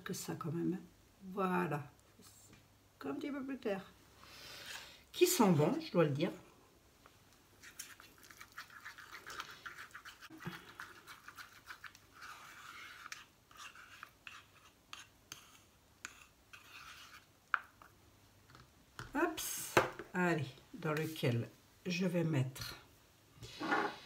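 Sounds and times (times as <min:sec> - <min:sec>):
stick scraping paste in saucepan: 0:07.6 - 0:17.9.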